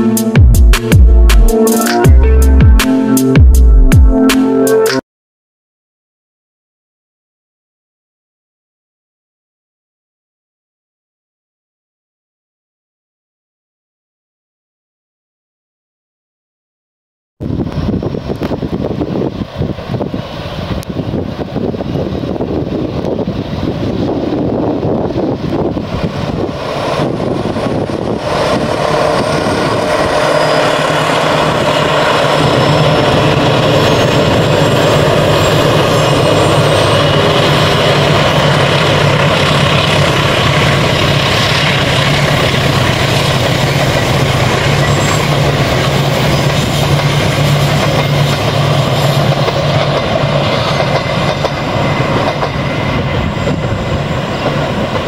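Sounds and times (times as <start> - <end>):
diesel locomotive engine drone: 0.0 - 5.0, 17.4 - 55.0
train wheels rumbling on rails: 17.5 - 55.0.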